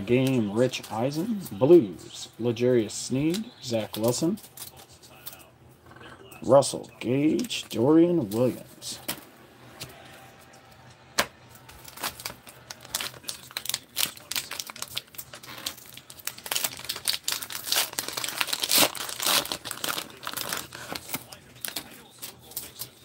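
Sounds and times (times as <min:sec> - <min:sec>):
wrapper tearing and crinkling: 0:11.6 - 0:22.9.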